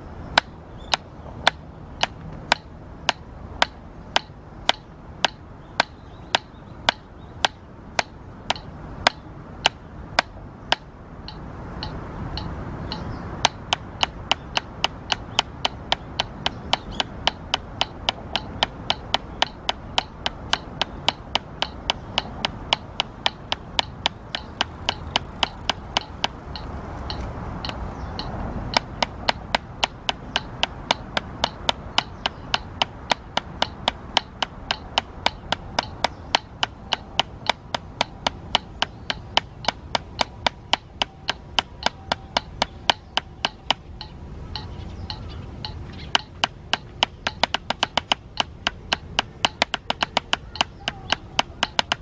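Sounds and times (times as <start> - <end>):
low steady background noise: 0.0 - 52.0
drumsticks striking practice pad: 0.3 - 52.0.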